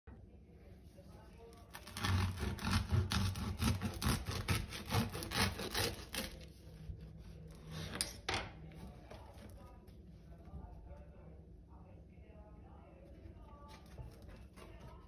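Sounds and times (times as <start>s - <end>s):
knife sawing through bread crust: 1.6s - 8.0s.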